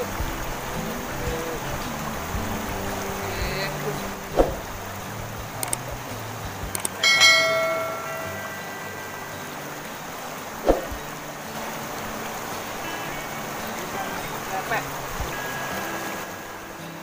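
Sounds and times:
fast-flowing river rushing: 0:00.0 - 0:17.0
faint clicks: 0:05.4 - 0:07.0
bright bell-like chime: 0:07.0 - 0:09.7.

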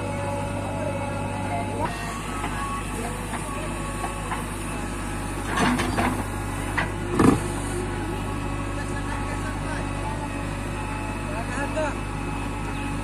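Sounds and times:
diesel engine running: 0:00.0 - 0:13.0
backhoe scraping and knocking: 0:01.7 - 0:07.9.

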